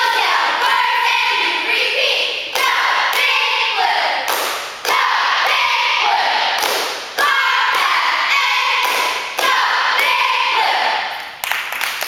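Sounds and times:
sharp claps: 4.3 - 5.6, 6.6 - 8.0, 8.8 - 10.2, 11.1 - 12.0
group yelling a cheer: 7.2 - 11.0.

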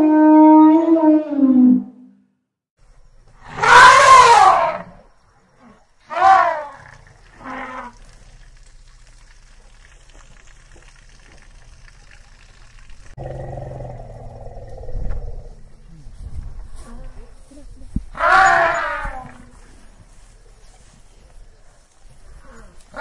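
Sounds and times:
elephant trumpeting: 3.5 - 4.9, 6.1 - 8.0, 18.2 - 19.2.

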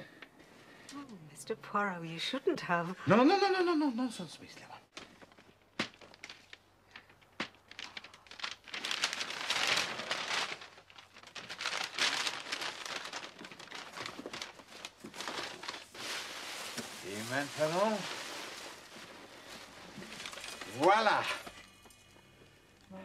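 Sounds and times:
wrapping paper crinkling and tearing: 4.9 - 22.1.

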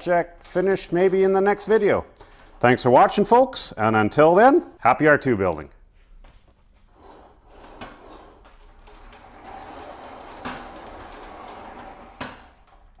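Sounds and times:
wheels rolling on concrete: 6.9 - 13.0.

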